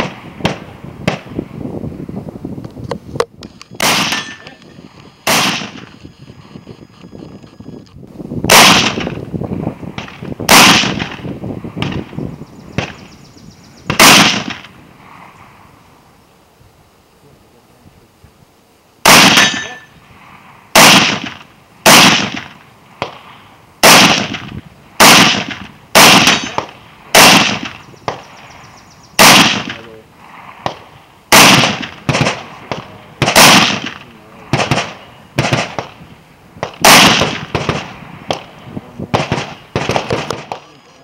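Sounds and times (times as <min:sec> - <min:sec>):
gunshots: 0:00.0 - 0:01.4, 0:03.8 - 0:04.6, 0:05.2 - 0:06.0, 0:08.5 - 0:09.2, 0:09.9 - 0:12.2, 0:12.8 - 0:13.1, 0:13.9 - 0:14.8, 0:19.0 - 0:19.9, 0:20.7 - 0:28.3, 0:29.2 - 0:30.0, 0:30.6 - 0:36.0, 0:36.6 - 0:41.0.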